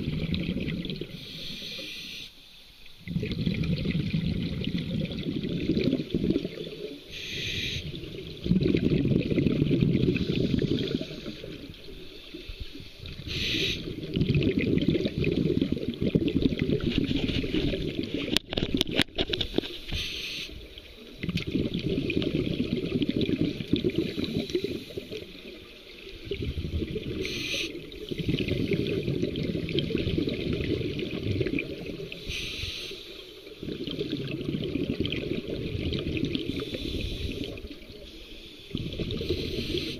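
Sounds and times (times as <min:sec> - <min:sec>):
exhaled bubbles underwater: 0:00.0 - 0:01.9, 0:03.0 - 0:19.5, 0:20.5 - 0:39.9
regulator inhale hiss: 0:01.1 - 0:02.7, 0:07.1 - 0:08.0, 0:12.0 - 0:14.0, 0:19.5 - 0:20.7, 0:24.0 - 0:25.5, 0:27.2 - 0:28.9, 0:32.1 - 0:33.5, 0:36.4 - 0:39.9.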